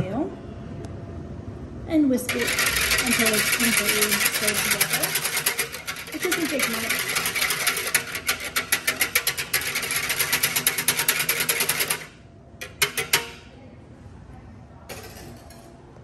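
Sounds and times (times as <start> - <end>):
whisk clicking against pitcher: 2.3 - 13.5.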